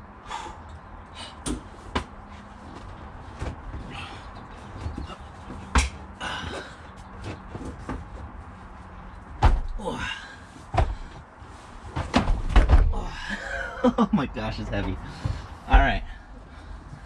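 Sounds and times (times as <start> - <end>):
generator thumping on cargo floor: 9.4 - 9.8, 11.9 - 13.0.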